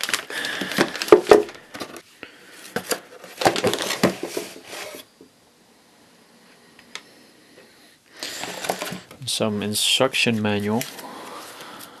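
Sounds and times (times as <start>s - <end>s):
plastic bag crinkling: 0.0s - 2.0s.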